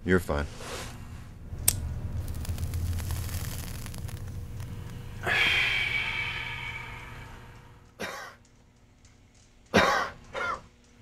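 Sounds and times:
person coughing: 8.0s - 8.4s, 9.8s - 10.6s.

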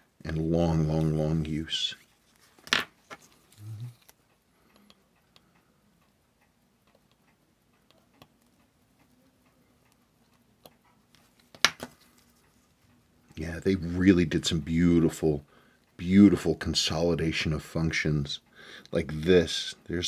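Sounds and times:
tweezers clicking and tapping: 6.8s - 9.2s.

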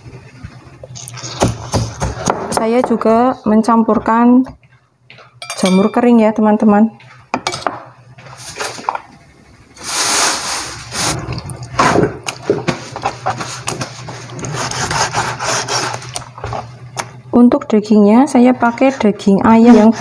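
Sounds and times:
knife scraping: 13.0s - 16.3s, 18.6s - 20.0s
knife sawing through meat: 14.4s - 16.2s, 19.0s - 20.0s.

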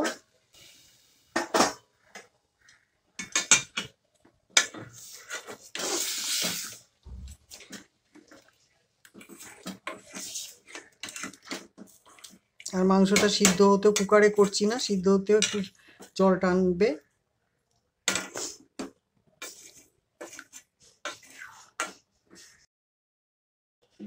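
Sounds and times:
ladle scraping a steel pot: 9.2s - 11.9s.

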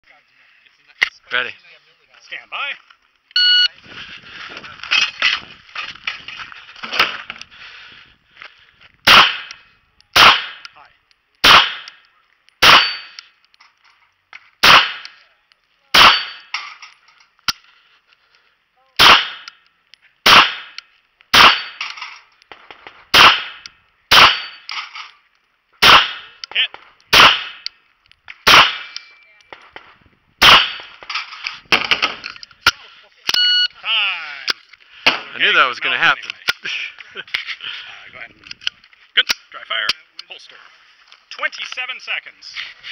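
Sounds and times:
pistol shots: 9.0s - 9.6s, 10.2s - 10.7s, 11.4s - 12.0s, 12.6s - 13.2s, 14.6s - 15.2s, 15.9s - 16.5s, 19.0s - 19.6s, 20.2s - 21.8s, 22.5s - 24.6s, 25.8s - 27.7s, 28.4s - 31.1s
steel plate ringing: 12.6s - 13.2s, 16.0s - 16.5s, 24.3s - 24.7s.

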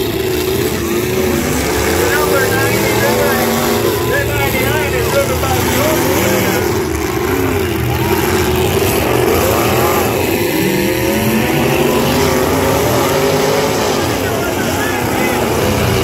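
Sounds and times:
truck engines revving: 0.0s - 16.0s.

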